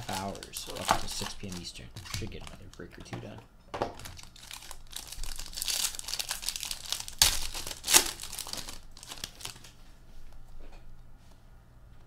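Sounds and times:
plastic wrapping crinkling and tearing: 0.0 - 3.0, 3.9 - 9.8.

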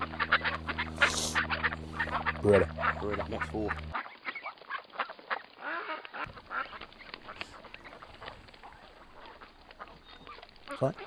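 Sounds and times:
ducks quacking: 0.0 - 11.0.

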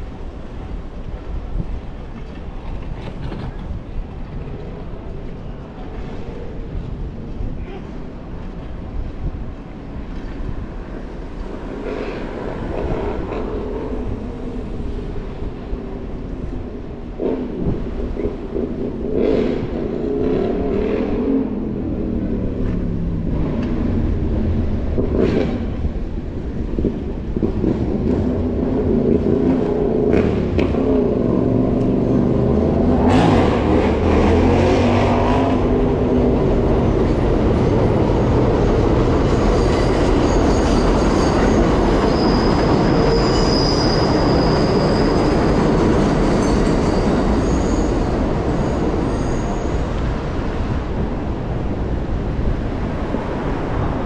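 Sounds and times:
high wheel squeal: 37.6 - 50.8.

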